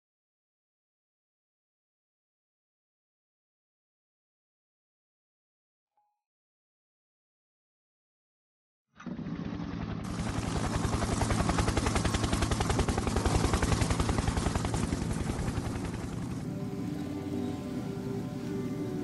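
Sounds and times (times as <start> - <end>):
rapid even pulsing: 9.1 - 17.0
low steady hum: 12.6 - 19.0
drone of held tones: 16.3 - 19.0.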